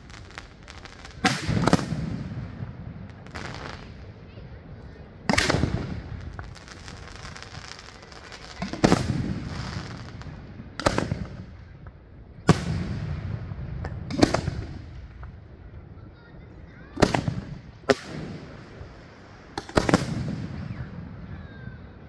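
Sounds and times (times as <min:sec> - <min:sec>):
fireworks bursting: 0:00.0 - 0:15.6, 0:16.6 - 0:21.7.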